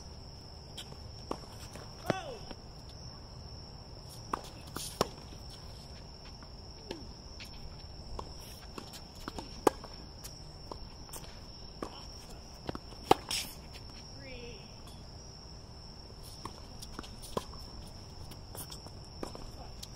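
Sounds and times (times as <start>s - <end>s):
crickets chirring: 0.0s - 19.9s
tennis ball hit and bouncing: 0.8s - 2.6s, 4.2s - 5.6s, 6.2s - 14.1s.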